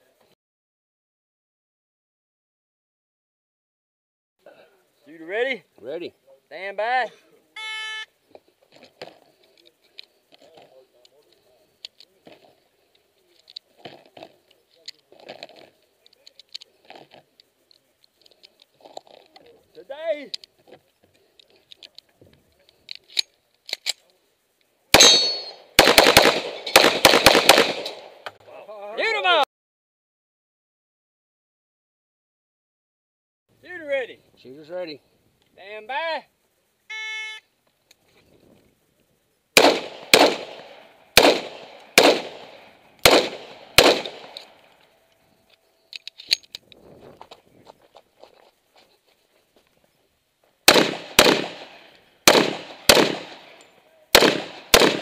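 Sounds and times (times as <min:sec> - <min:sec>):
pistol shots: 0:24.9 - 0:28.2, 0:39.6 - 0:44.6, 0:50.7 - 0:55.0
footsteps on gravel: 0:47.0 - 0:49.8.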